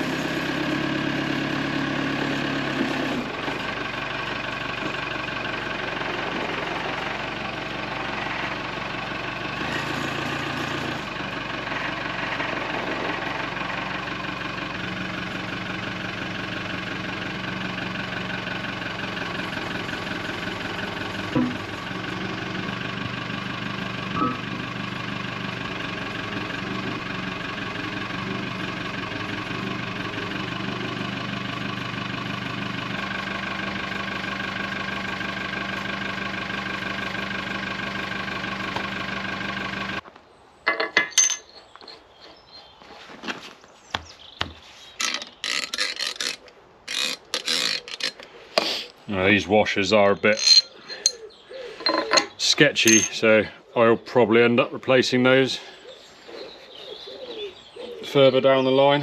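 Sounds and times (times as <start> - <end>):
tractor engine idling: 0.0 - 40.0, 45.0 - 59.0
metal clank: 21.3 - 21.8, 24.1 - 24.6, 40.7 - 41.6, 50.2 - 53.2.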